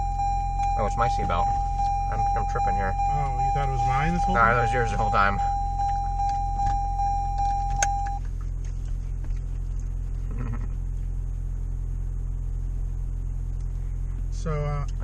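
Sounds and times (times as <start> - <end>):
seatbelt reminder beeping: 0.0 - 8.3
car cabin hum: 0.0 - 15.0.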